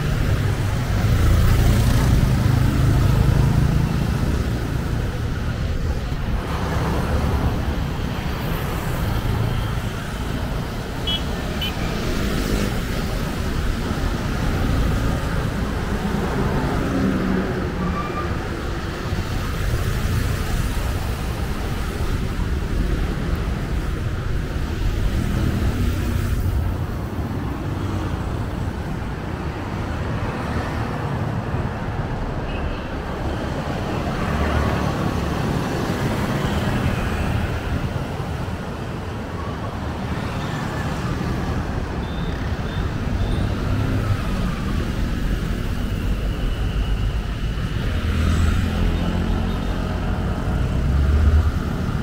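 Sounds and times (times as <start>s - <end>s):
passing motor vehicles rumble: 0.0s - 32.3s, 40.1s - 52.0s.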